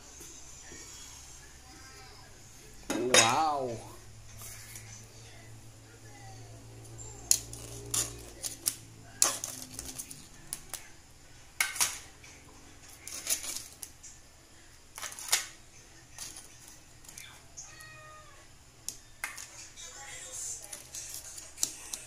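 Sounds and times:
tongs clacking against wok and crabs: 7.3s - 10.8s, 20.6s - 22.0s.

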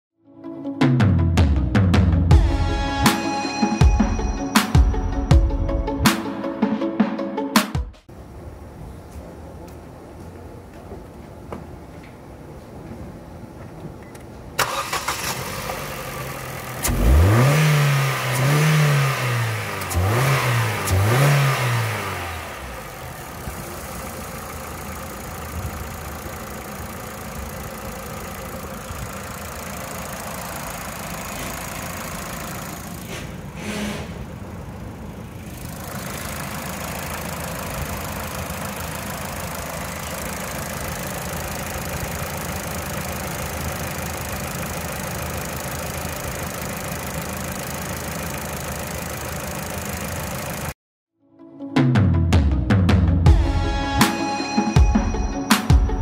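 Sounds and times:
car engine cranking: 14.0s - 50.8s
car engine revving and idling: 14.6s - 50.8s.

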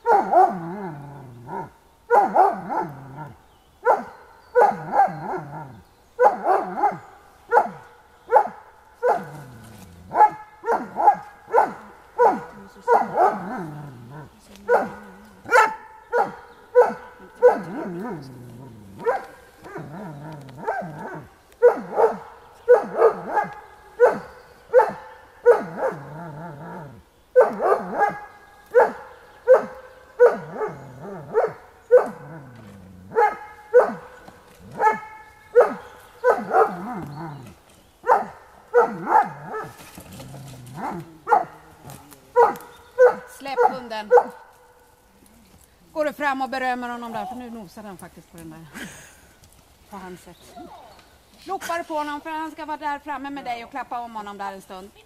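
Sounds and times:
dog barking: 0.0s - 0.6s, 1.6s - 9.4s, 10.1s - 13.5s, 14.6s - 18.3s, 19.0s - 19.9s, 20.6s - 26.1s, 27.4s - 32.3s, 33.1s - 34.2s, 34.8s - 37.0s, 38.0s - 39.8s, 40.8s - 41.6s, 42.4s - 44.7s.

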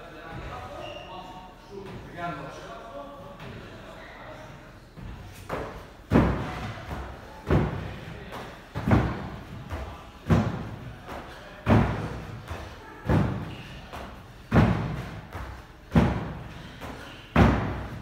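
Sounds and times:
feet thudding on wooden box: 8.8s - 18.0s.

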